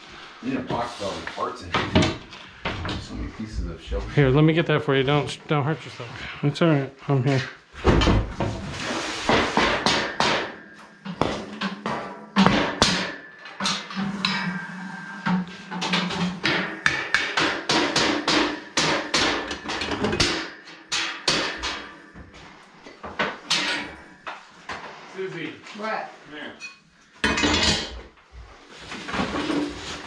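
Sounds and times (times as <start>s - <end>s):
hammer knocking on metal shelving: 9.3s - 10.6s, 11.2s - 13.2s, 16.4s - 21.8s.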